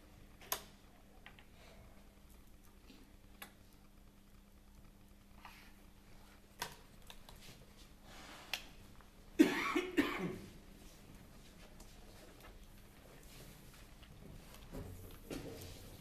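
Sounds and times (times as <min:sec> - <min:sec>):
person coughing: 0:09.4 - 0:10.5.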